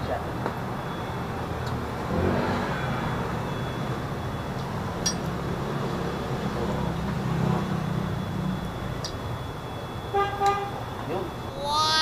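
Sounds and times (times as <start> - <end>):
street traffic rumbling: 0.0 - 12.0
vehicle engine: 0.0 - 12.0
small metallic clink: 5.0 - 5.3.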